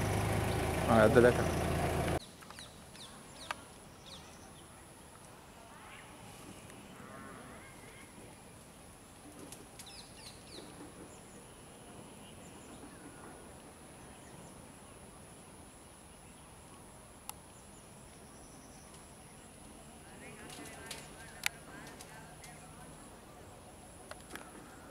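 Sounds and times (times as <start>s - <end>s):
faint bird chirps: 2.2s - 4.8s.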